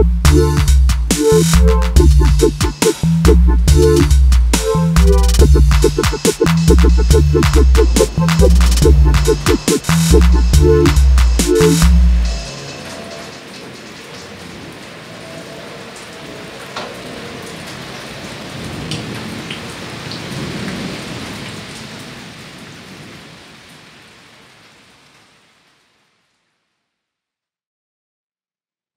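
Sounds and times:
rain hissing: 0.0s - 26.6s
sharp raindrops: 0.0s - 26.7s.

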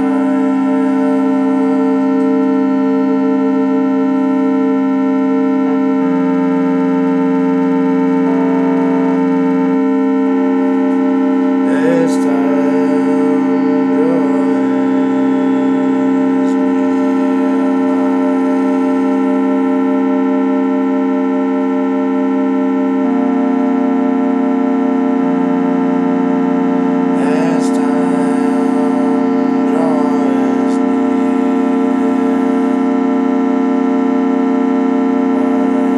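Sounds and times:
wavering pitch sweeps: 0.0s - 4.1s, 10.6s - 20.8s
electric organ drone chords: 0.0s - 35.9s.

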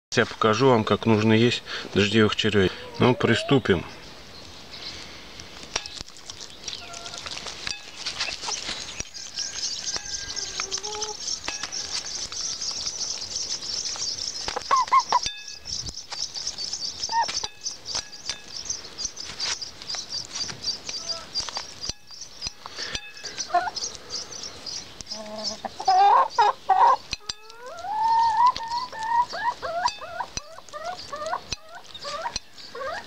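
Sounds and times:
hens clucking: 1.9s - 4.0s, 6.7s - 15.3s, 16.4s - 18.1s, 22.7s - 33.0s
beaks tapping on a plate: 8.9s - 18.8s, 26.8s - 32.5s
high chirring: 9.0s - 19.2s.

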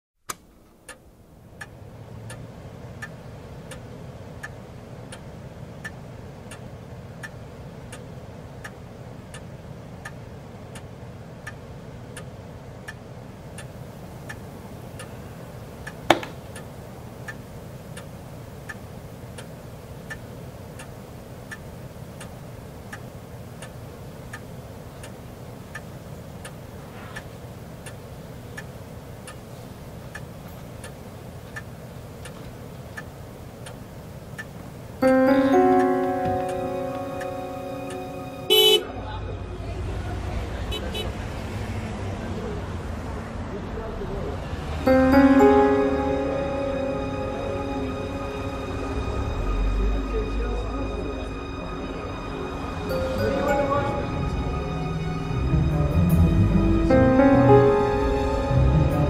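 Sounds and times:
clock ticking: 0.3s - 15.2s, 15.8s - 26.6s, 27.2s - 38.9s
low steady hum: 0.3s - 41.0s, 44.8s - 59.0s
loud sharp click: 16.1s - 16.6s.

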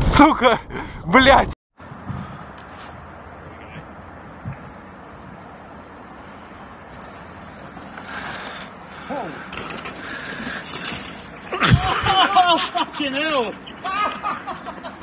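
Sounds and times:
bike tyres on dirt trail: 1.8s - 12.0s.

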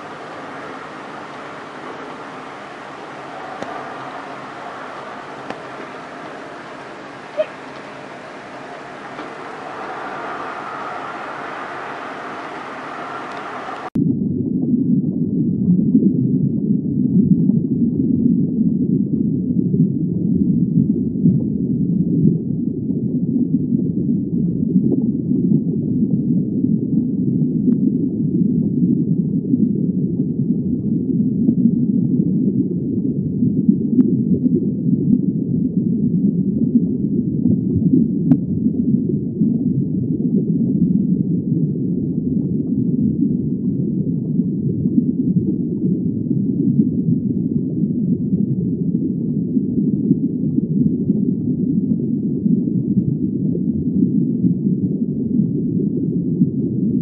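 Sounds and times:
faint ticks: 0.0s - 14.0s
muffled underwater rushing: 0.0s - 14.0s.

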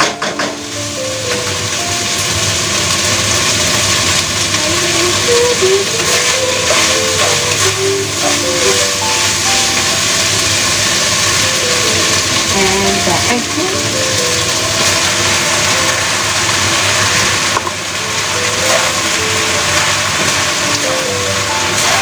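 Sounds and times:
meat sizzling in a wok: 0.0s - 22.0s
soft melody: 0.0s - 22.0s
wooden spatula scraping: 5.9s - 9.3s.

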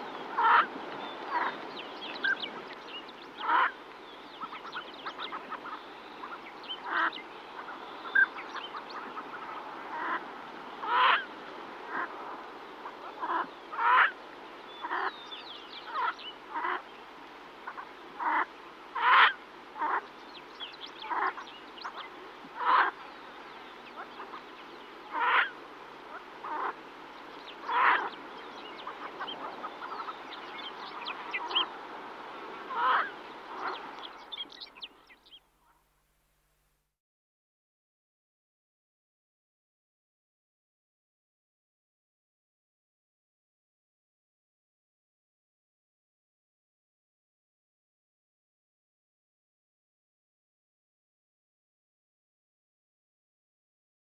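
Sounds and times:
duck calling: 0.4s - 0.7s, 3.4s - 3.8s, 10.8s - 11.3s, 13.1s - 14.1s, 17.7s - 20.0s, 22.6s - 23.0s, 25.1s - 25.5s, 27.7s - 28.1s.

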